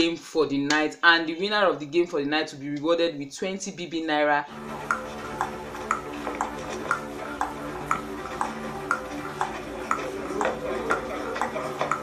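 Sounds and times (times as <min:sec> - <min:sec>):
clock ticking: 0:04.5 - 0:12.0
low musical drone: 0:04.5 - 0:12.0.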